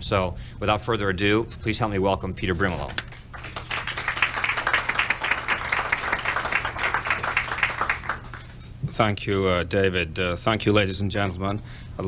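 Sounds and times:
audience applauding: 3.1s - 8.6s.

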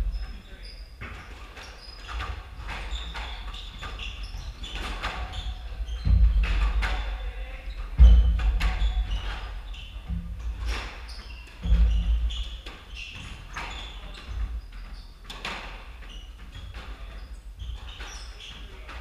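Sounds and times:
sneakers squeaking on floor: 0.0s - 19.0s
heavy thuds: 3.8s - 12.7s.

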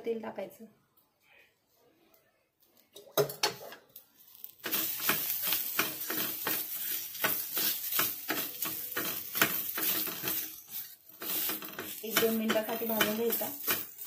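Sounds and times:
onions sizzling in oil: 4.1s - 14.0s
wooden spatula scraping a pan: 4.2s - 14.0s.

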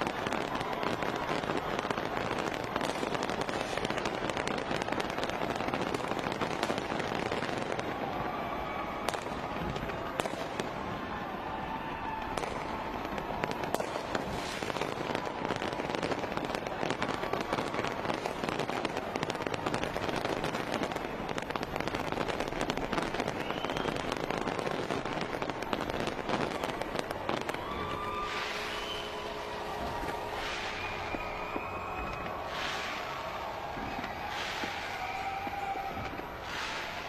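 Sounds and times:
fireworks pops and bangs: 0.0s - 37.0s
hiss: 27.6s - 29.2s, 30.3s - 37.0s.

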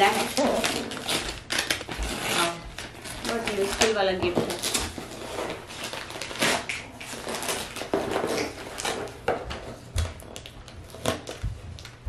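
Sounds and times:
wrapping paper tearing and rustling: 0.0s - 12.0s.

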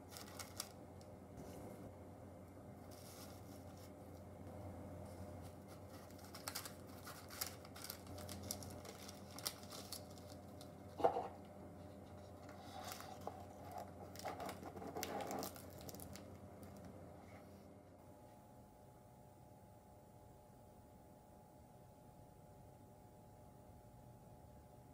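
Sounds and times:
paper rustling and crinkling: 0.0s - 0.8s, 2.8s - 4.3s, 5.0s - 17.5s
faint low hum: 0.0s - 24.9s.

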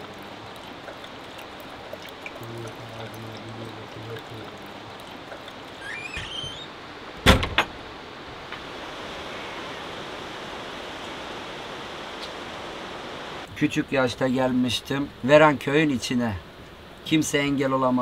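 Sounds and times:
running water rushing: 0.0s - 18.0s
sharp loud knocks: 7.2s - 7.8s.

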